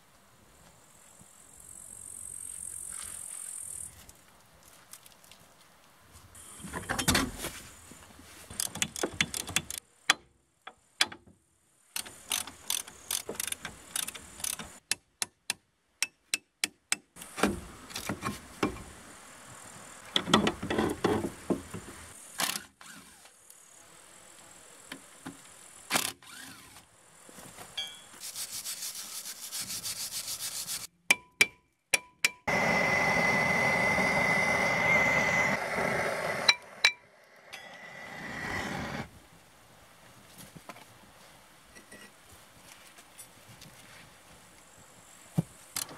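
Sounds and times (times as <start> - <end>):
blowtorch hissing: 32.5 - 39.1.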